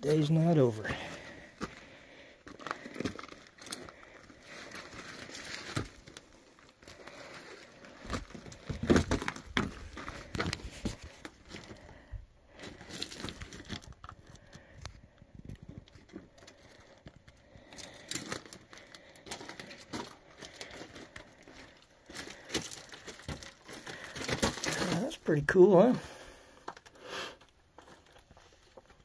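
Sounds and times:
footsteps crunching on rocky ground: 0.6 - 14.0, 17.7 - 25.2.

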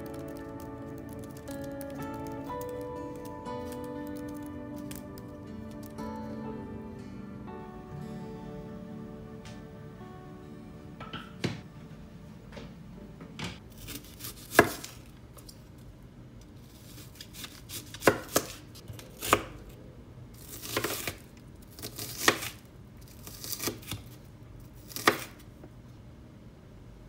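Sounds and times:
knife chopping onion on wooden board: 13.8 - 15.0, 24.9 - 25.4.

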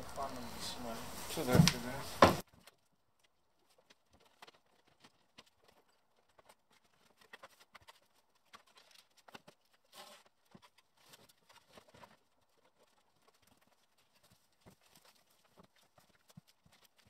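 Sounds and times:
faint footsteps: 0.0 - 2.4
wooden boards knocking: 1.3 - 2.4.

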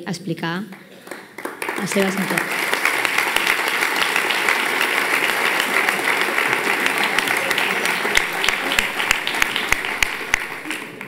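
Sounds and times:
audience applauding: 0.7 - 11.0.

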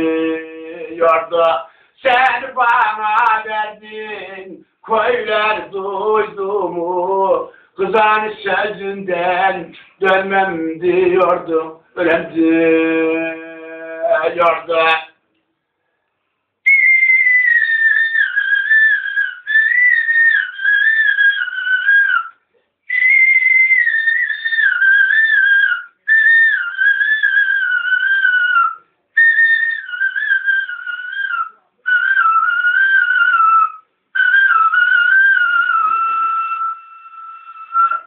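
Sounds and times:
man breathing: 1.6 - 2.0, 7.5 - 7.8
man whistling a melody: 16.7 - 38.0.

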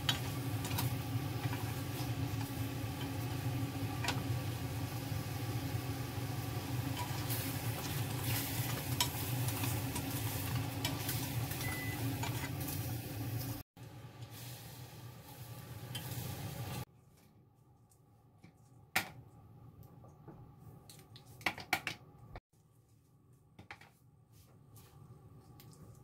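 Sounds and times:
broth simmering in a pan: 0.0 - 16.9
kitchen background: 0.0 - 26.0.

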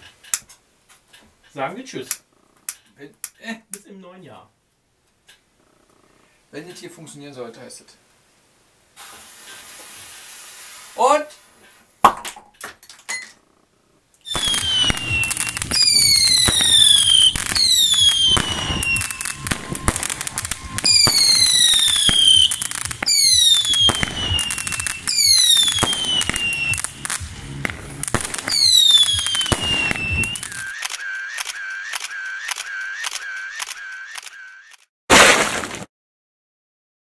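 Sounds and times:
firework cracks and crackling: 14.3 - 33.8, 35.1 - 35.9
firework whistles: 14.3 - 34.7
short clicks: 30.5 - 34.9.

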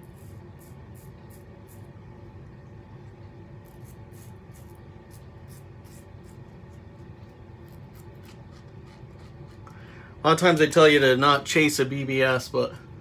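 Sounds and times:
razor scraping stubble: 3.6 - 9.8.

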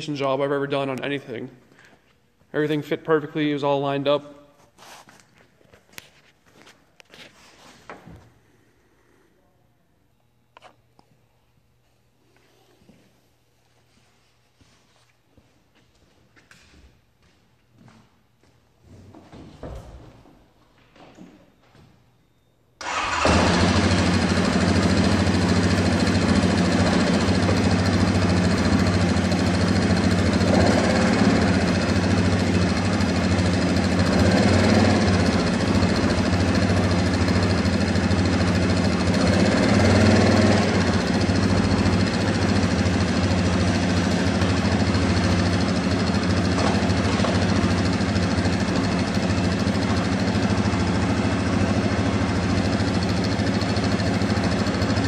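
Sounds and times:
engine starting and idling: 22.8 - 55.0.

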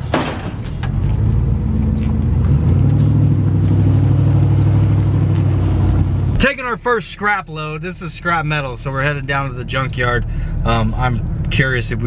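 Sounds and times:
suv engine pulling away: 0.0 - 6.7.

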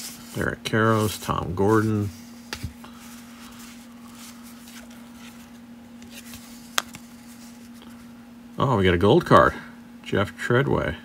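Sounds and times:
cards rustling: 0.0 - 8.1.

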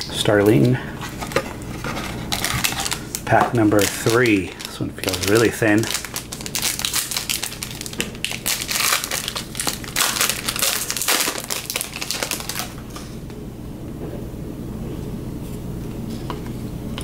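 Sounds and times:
foil wrapper crinkling: 0.3 - 13.1.

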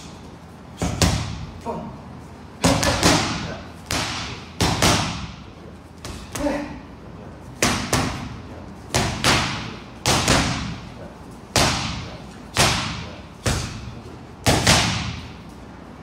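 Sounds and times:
boxing gloves hitting focus mitts: 7.6 - 10.8, 11.5 - 15.4.

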